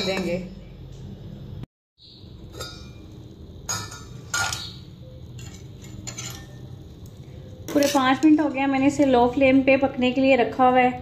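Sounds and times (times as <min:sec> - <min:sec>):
cookware clinking on saucepan: 0:02.5 - 0:06.8.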